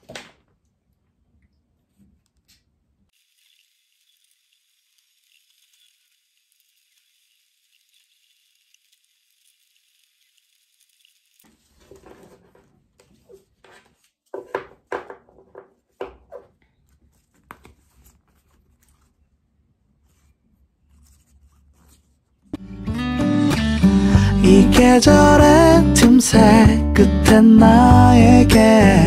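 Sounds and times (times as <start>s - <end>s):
cardboard rustling and tapping: 11.8s - 19.2s.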